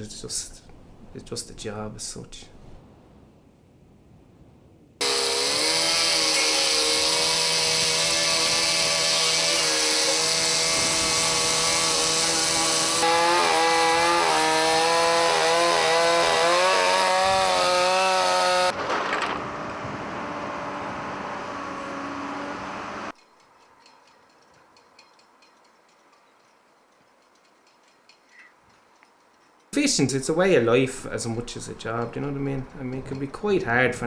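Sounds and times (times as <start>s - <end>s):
chainsaw cutting wood: 5.0s - 19.8s
steady mechanical noise: 5.0s - 23.1s.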